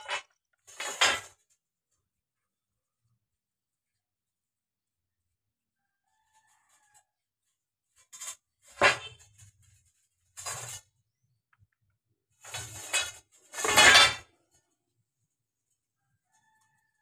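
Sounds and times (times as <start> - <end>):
metal pipes clinking: 12.5 - 14.3
rooster crowing: 16.1 - 17.0.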